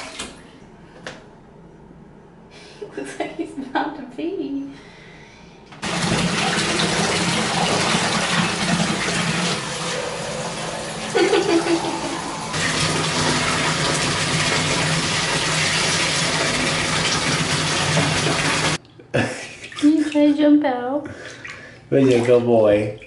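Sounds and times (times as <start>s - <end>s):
tap water running into bathtub: 0.0s - 0.4s, 5.8s - 18.8s, 21.1s - 23.0s.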